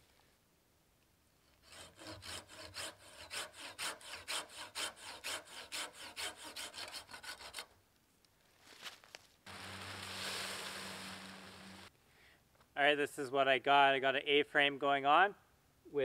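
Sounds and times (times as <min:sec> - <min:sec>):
hand saw cutting branch: 0:01.6 - 0:07.7.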